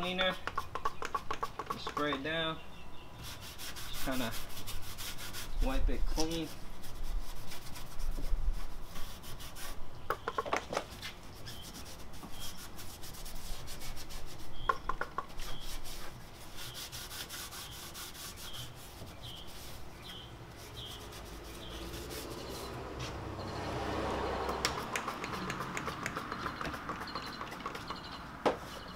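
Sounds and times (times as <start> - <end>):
cloth rubbing on car paint: 3.2 - 10.0, 10.7 - 23.3.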